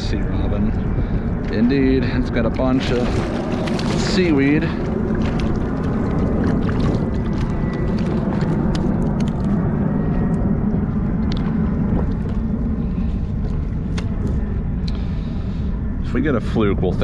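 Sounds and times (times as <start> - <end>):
wind rumbling on microphone: 0.0 - 17.0
small waves lapping: 1.5 - 9.7.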